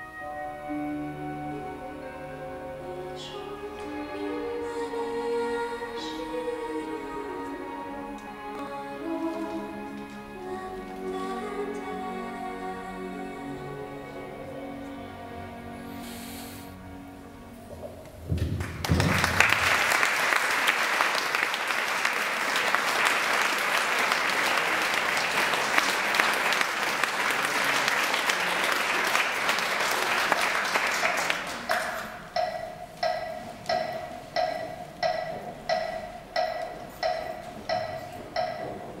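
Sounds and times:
audience applauding: 18.4s - 32.2s.

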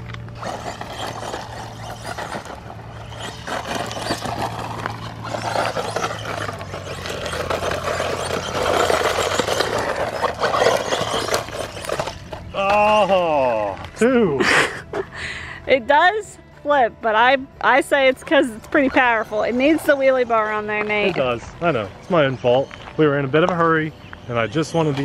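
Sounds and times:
grit clicking: 0.0s - 14.0s
electric motor whir: 0.0s - 15.0s, 17.8s - 25.0s
tyres scrabbling on dry dirt: 0.0s - 15.1s, 16.7s - 25.0s.

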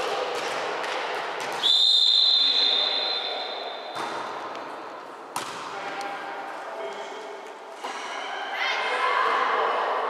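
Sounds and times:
referee's whistle blast: 1.6s - 4.0s
murmur of voices: 5.6s - 10.0s.

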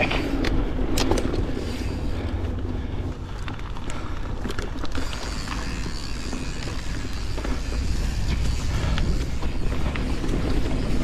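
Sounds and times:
bike clicks and rattles: 0.0s - 11.0s
tyres rolling on dirt trail: 0.0s - 11.0s
wind buffeting microphone: 0.0s - 11.0s.

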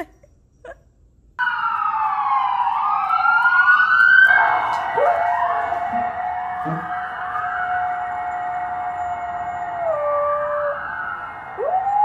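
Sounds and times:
emergency vehicle sirens wailing: 1.4s - 12.0s.

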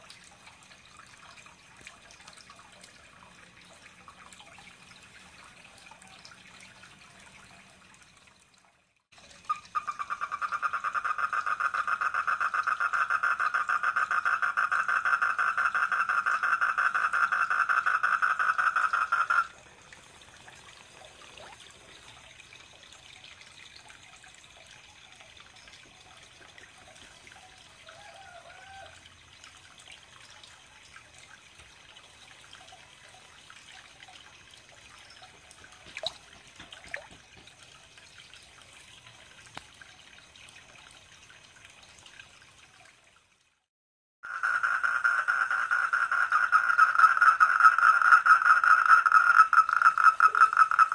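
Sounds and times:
faint water trickling: 0.0s - 50.9s
frog trilling: 9.5s - 19.5s, 44.2s - 50.9s.

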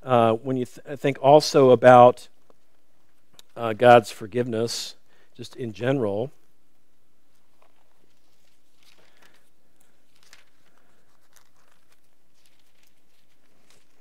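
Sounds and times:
thin pages being turned: 7.4s - 14.0s.

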